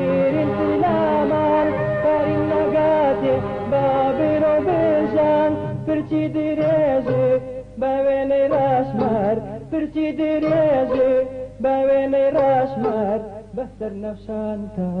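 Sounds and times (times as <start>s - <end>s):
small band playing: 0.0s - 7.6s, 10.4s - 11.2s
man singing folk song: 0.0s - 15.0s.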